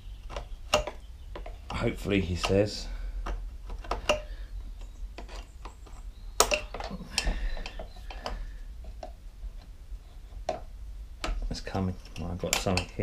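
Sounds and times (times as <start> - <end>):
pliers clicking and scraping: 2.4 - 9.1.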